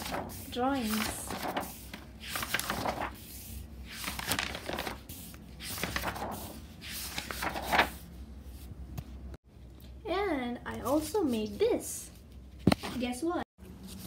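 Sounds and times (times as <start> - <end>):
paper pages turning: 0.0 - 8.1.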